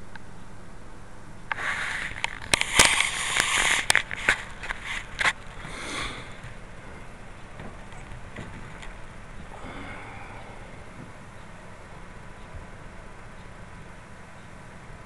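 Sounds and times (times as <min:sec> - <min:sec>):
handling noise on microphone: 0:01.5 - 0:05.7.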